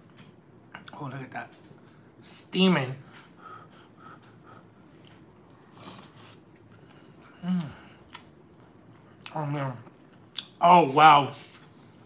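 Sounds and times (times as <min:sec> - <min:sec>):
person chewing food: 0:03.2 - 0:10.6
person humming mm of enjoyment: 0:07.4 - 0:08.0.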